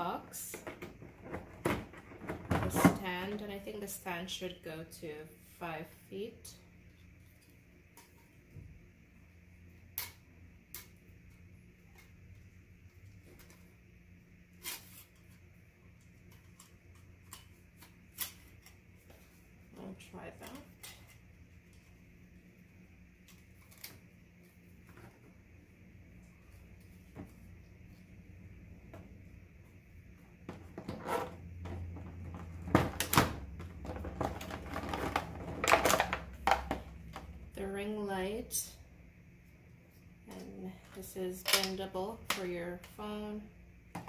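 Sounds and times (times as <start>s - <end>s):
low steady hum: 0.0s - 44.0s
plastic tray crackling: 32.0s - 36.7s.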